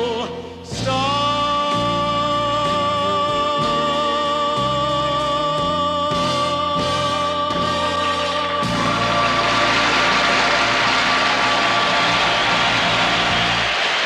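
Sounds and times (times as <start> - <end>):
man singing a long note: 0.0 - 9.5
orchestral accompaniment: 2.6 - 14.0.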